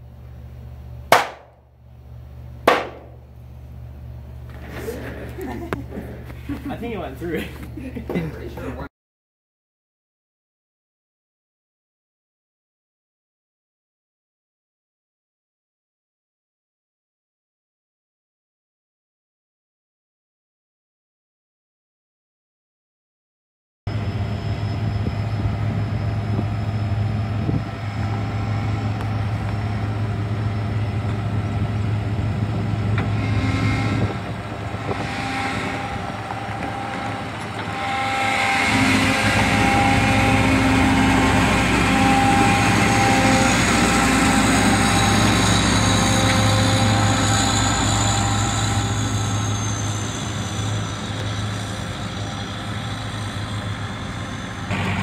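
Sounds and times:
combine diesel engine running: 51.0s - 55.0s.

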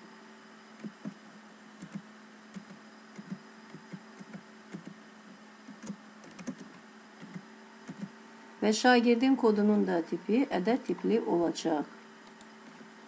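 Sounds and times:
low electrical hum and hiss: 0.0s - 13.0s
typing on computer keyboard: 5.7s - 8.1s.

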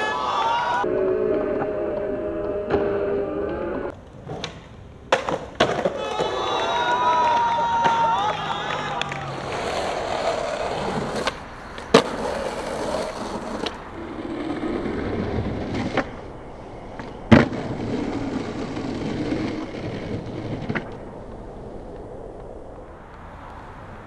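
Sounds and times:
skateboard wheels rolling on pavement: 0.0s - 24.0s
skateboard clacking on ground: 3.9s - 13.8s, 16.9s - 22.5s.

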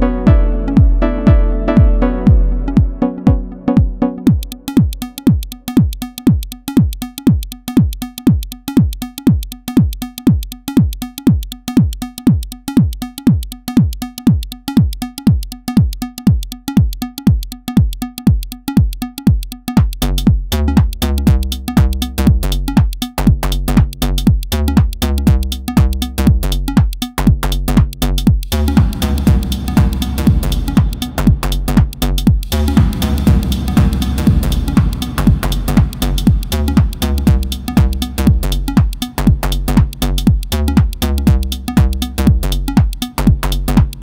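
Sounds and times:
deep synth bass line: 0.0s - 6.2s, 19.6s - 44.0s
punchy electronic drum beat: 0.0s - 44.0s.

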